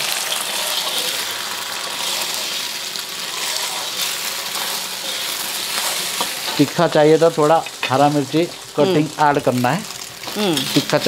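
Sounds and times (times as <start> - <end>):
ladle scraping wok: 0.0 - 6.7
eggs sizzling in hot oil: 0.0 - 11.0.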